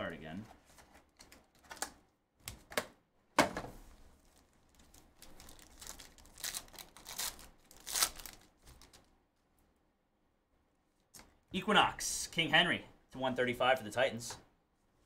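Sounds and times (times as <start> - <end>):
foil wrapper crinkling: 4.3 - 9.1.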